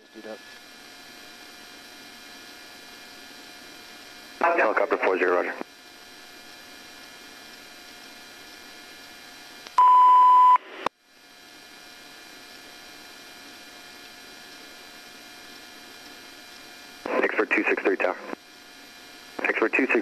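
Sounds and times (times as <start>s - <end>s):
radio static hiss and hum: 0.0s - 20.0s
electronic beep: 9.8s - 10.6s.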